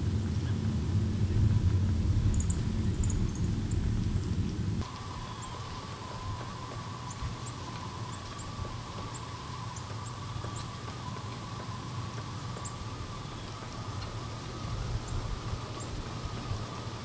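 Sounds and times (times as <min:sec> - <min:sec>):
steady low rumble: 0:00.0 - 0:16.7
faint steady hum: 0:00.0 - 0:17.0.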